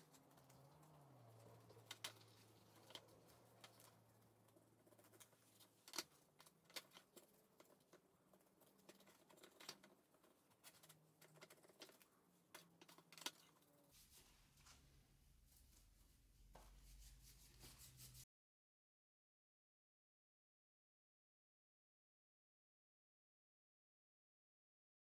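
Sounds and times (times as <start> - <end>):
brush tapping and clicking: 0.0 - 13.6
quiet low hum: 0.0 - 18.2.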